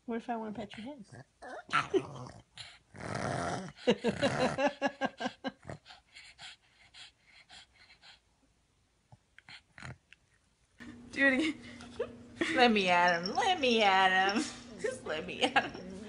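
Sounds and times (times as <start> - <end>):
dog breathing in noisy huffs: 5.7 - 8.3.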